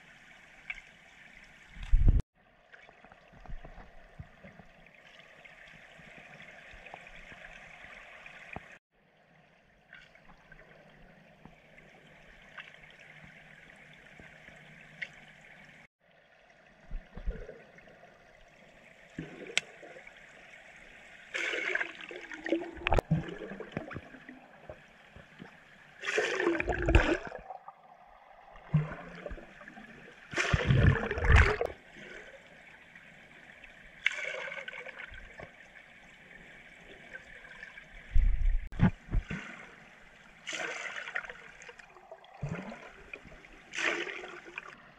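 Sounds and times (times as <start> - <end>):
air bubbles rushing underwater: 21.4 - 24.9, 26.0 - 31.9.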